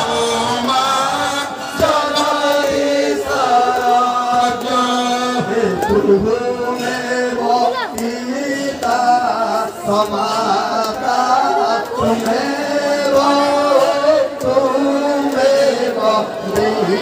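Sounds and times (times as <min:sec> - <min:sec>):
man chanting into a microphone: 0:00.0 - 0:17.0.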